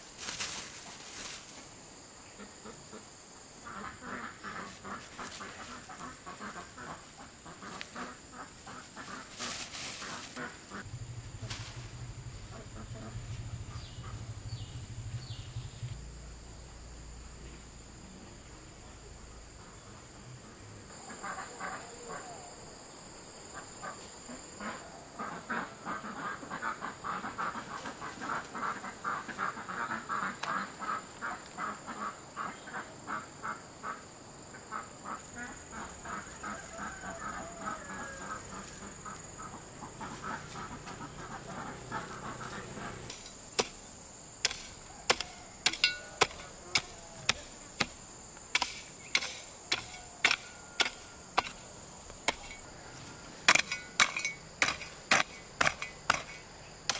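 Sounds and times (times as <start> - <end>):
ducks quacking: 2.4 - 14.4, 21.0 - 22.4, 23.8 - 43.2
sharp evenly spaced knocks: 43.1 - 52.6, 53.4 - 56.9.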